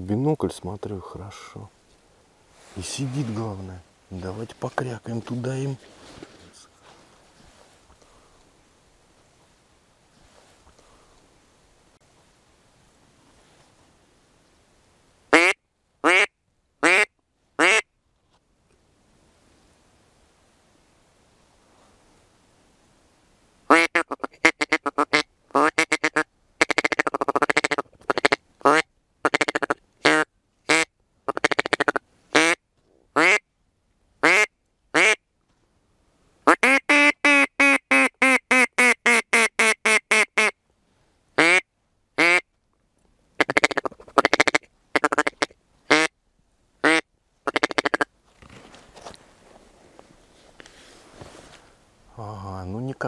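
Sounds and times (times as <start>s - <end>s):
duck call quacking: 15.3s - 17.8s, 23.7s - 32.6s, 33.2s - 33.4s, 34.2s - 35.2s, 36.4s - 40.6s, 41.4s - 41.6s, 42.2s - 42.4s, 43.4s - 46.1s, 46.8s - 48.0s.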